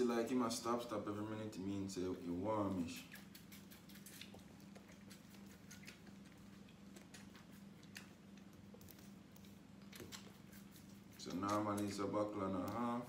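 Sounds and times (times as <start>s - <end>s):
low steady hum: 0.0s - 13.0s
goat sucking from bottle: 2.9s - 12.0s.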